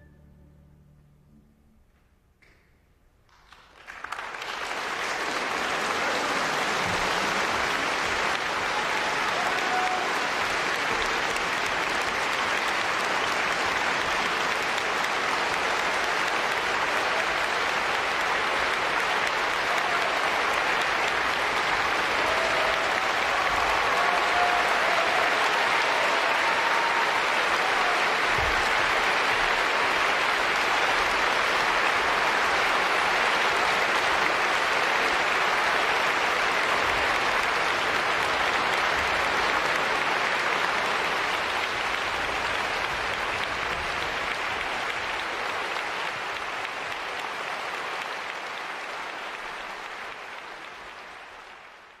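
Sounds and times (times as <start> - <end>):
audience applauding: 3.3 - 52.0.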